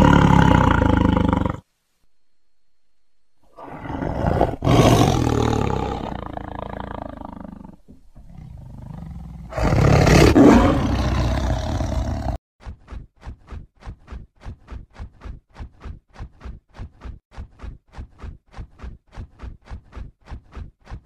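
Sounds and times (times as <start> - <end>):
tiger roaring: 0.0 - 1.7, 3.5 - 12.4.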